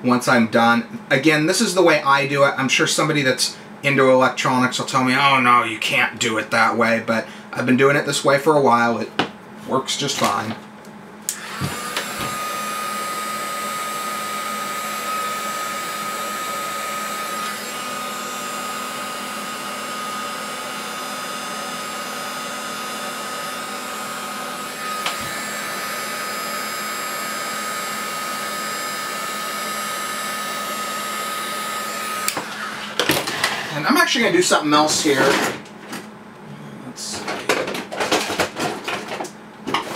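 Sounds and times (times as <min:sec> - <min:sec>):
heat gun rushing air and whine: 0:11.3 - 0:35.7.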